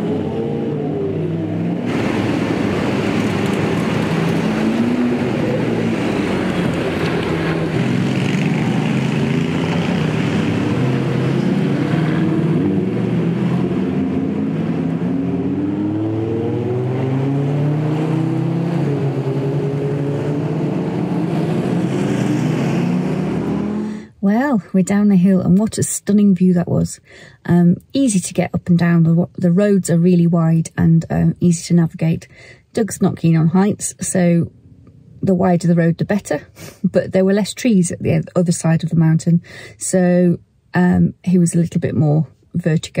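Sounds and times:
motorcycle engines accelerating: 0.0 - 24.0
sports car engines accelerating: 0.0 - 24.1.

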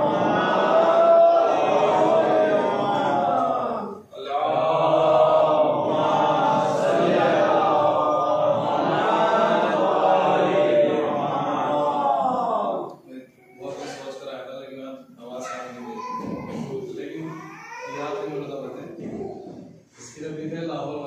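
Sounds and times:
voices chanting in unison: 0.0 - 12.9.

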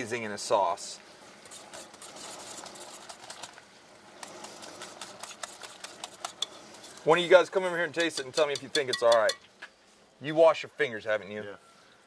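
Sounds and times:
whisk clicking against bowl: 4.8 - 6.6, 7.9 - 9.4.

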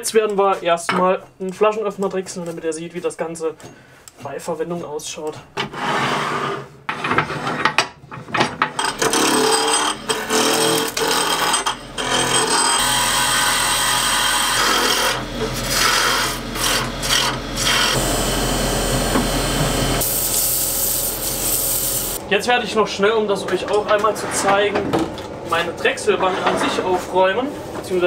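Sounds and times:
gouge scraping spinning wood: 8.8 - 22.2
lathe humming: 8.8 - 22.2.

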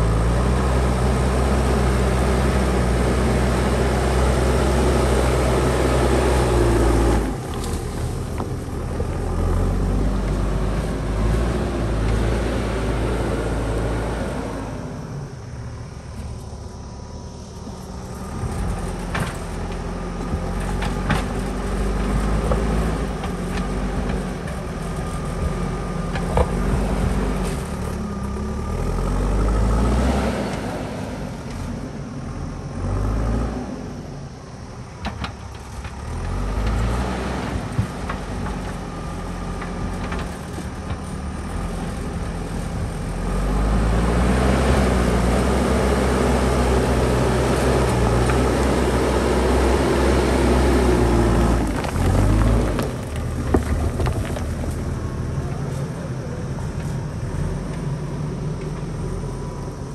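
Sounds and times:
diesel engine working under load: 0.0 - 59.9
bucket pushing earth and rock: 50.5 - 55.2.

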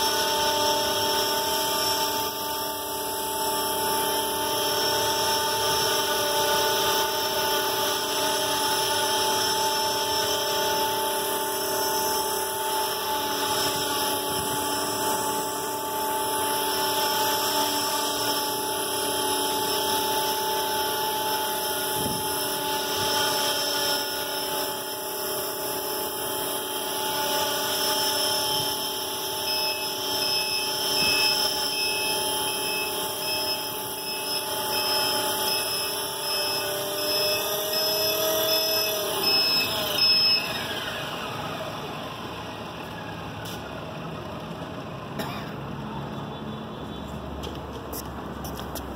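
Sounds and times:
rc helicopter hovering: 0.0 - 47.4.

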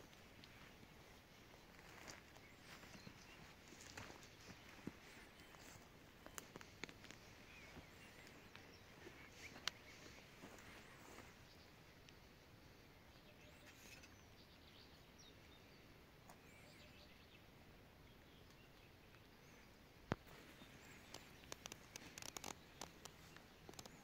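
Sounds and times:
distant bird chirps: 0.0 - 24.0
light clicks and rustles: 1.7 - 11.2, 20.1 - 24.0.

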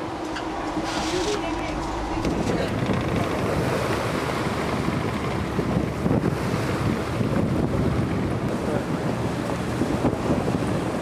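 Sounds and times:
choppy sea against hull: 0.0 - 11.0
wind buffeting microphone: 0.0 - 11.0.

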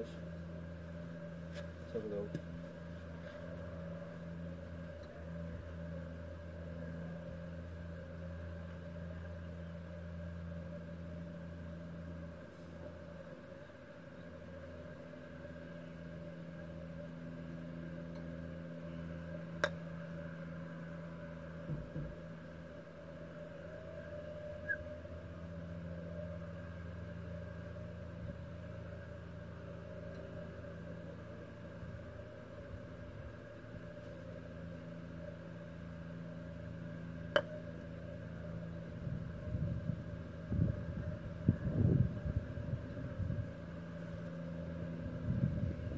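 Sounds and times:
steady mechanical hum: 0.0 - 45.9
golf club striking ball: 19.6 - 19.8, 37.3 - 37.6
wind buffeting microphone: 39.0 - 43.5, 45.1 - 45.9.

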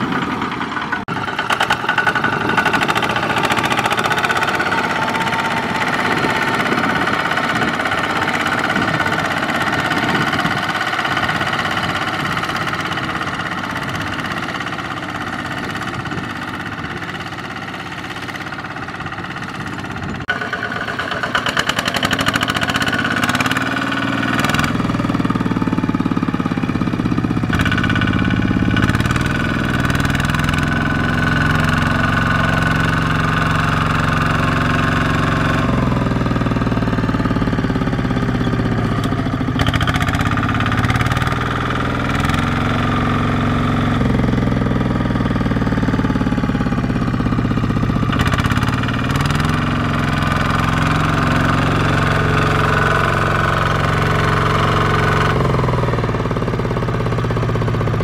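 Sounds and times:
diesel tractor engine under load: 0.0 - 58.0.

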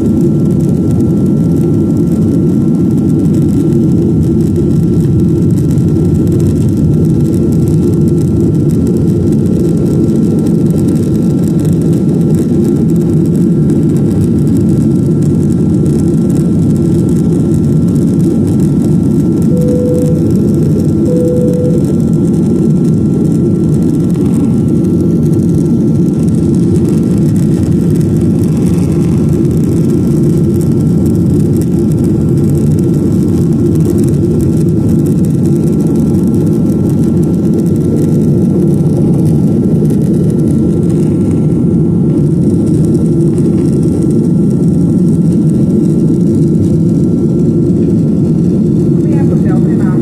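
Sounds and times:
jet engine roar in cabin: 0.0 - 50.0
faint steady whine: 17.6 - 50.0.

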